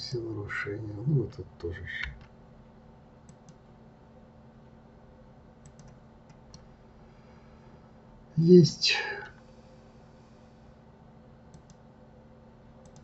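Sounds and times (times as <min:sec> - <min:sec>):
faint steady hum: 0:00.0 - 0:13.0
computer mouse and keyboard clicks: 0:03.2 - 0:03.6, 0:05.6 - 0:06.7, 0:11.5 - 0:11.8.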